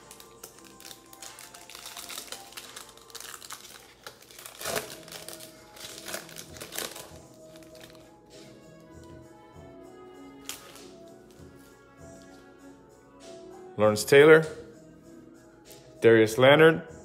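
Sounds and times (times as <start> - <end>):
plastic wrapper crinkling: 0.0 - 8.2, 10.4 - 11.1
background music: 0.0 - 17.0.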